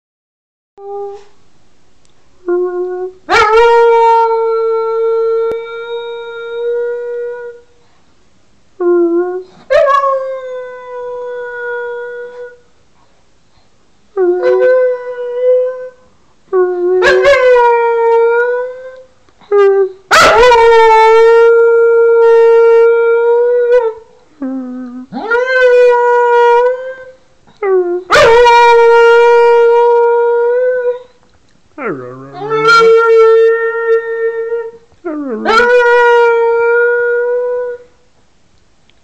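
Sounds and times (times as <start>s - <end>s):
dog howling: 31.8s - 37.8s.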